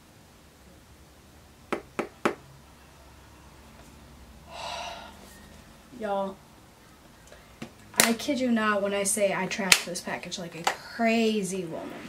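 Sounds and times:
short breathy gasp: 0:04.5 - 0:05.4.

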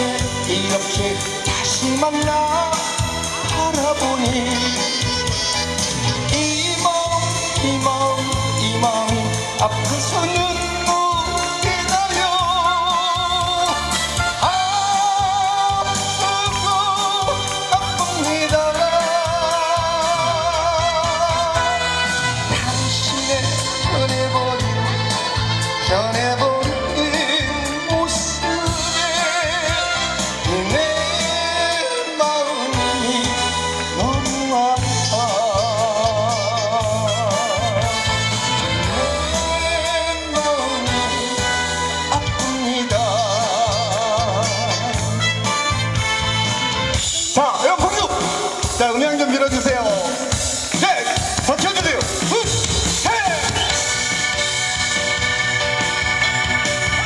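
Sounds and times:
backing track bass and beat: 0:00.0 - 0:57.0
person singing with vibrato: 0:00.0 - 0:57.0.

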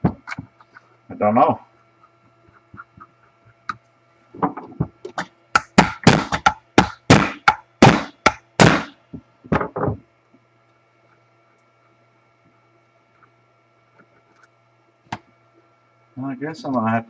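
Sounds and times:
sharp knocks on metal part: 0:04.4 - 0:10.0.

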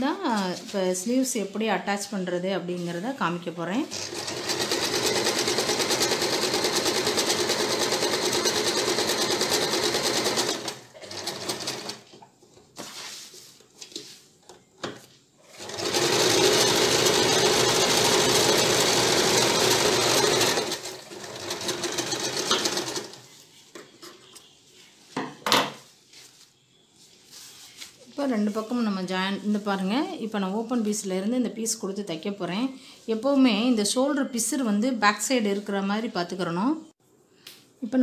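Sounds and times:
sewing machine stitching: 0:03.9 - 0:12.1, 0:15.5 - 0:23.3.

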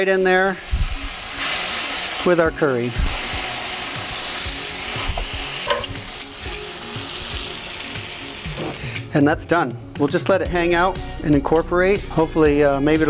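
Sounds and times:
beef sizzling in a hot pan: 0:00.0 - 0:08.8.

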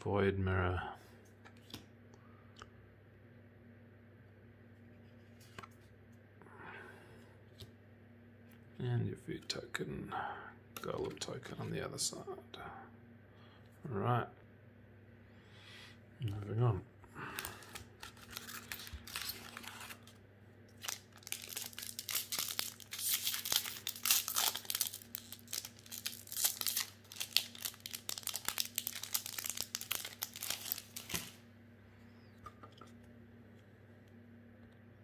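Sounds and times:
foil wrapper crinkling and tearing: 0:17.3 - 0:31.4.

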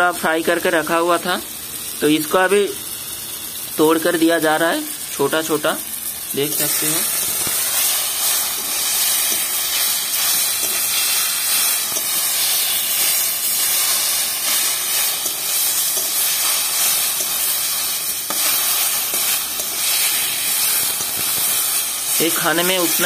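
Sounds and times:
vegetables sizzling in a pan: 0:00.0 - 0:23.0
metal spatula scraping: 0:06.5 - 0:21.2.

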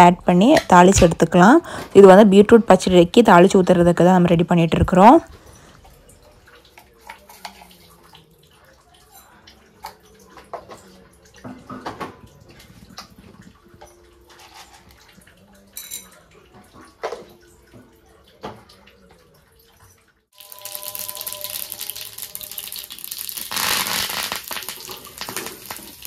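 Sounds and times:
oil sizzling: 0:20.4 - 0:26.0
pops and crackles of frying seeds: 0:20.4 - 0:26.0.

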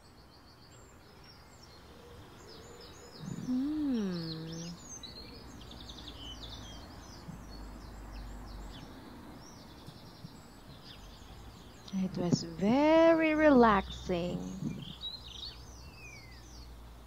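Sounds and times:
outdoor ambience hiss: 0:00.0 - 0:17.0
songbirds chirping: 0:00.0 - 0:17.0.

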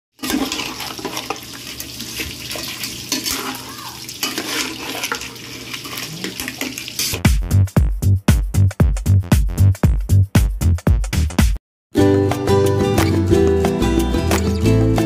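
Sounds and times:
ladle scraping shells in a pot: 0:00.2 - 0:07.2
sauce cooking: 0:00.2 - 0:07.2.

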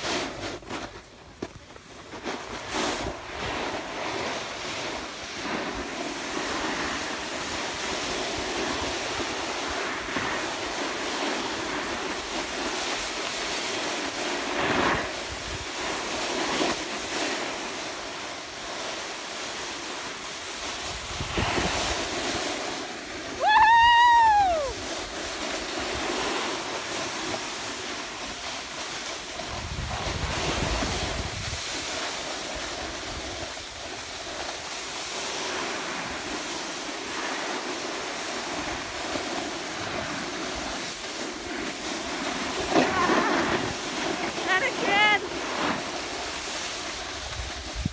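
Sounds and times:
wind buffeting microphone: 0:20.8 - 0:22.5, 0:29.4 - 0:31.8, 0:47.1 - 0:47.9.

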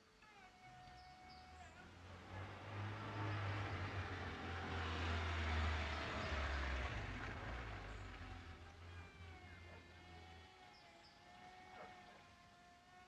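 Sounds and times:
car engine rumble: 0:03.6 - 0:08.7.

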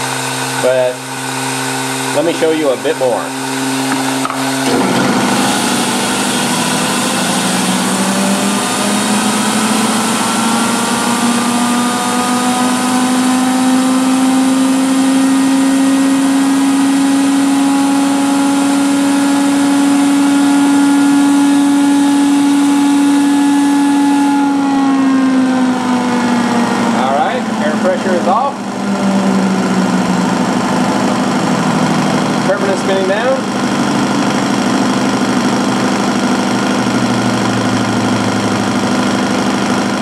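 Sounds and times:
turbine humming whine: 0:00.0 - 0:40.0
compressed air rushing: 0:03.3 - 0:09.4.

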